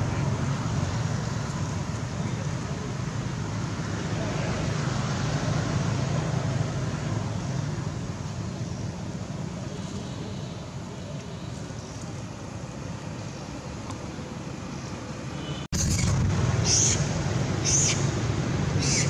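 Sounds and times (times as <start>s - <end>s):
low outdoor rumble: 15.8s - 19.0s.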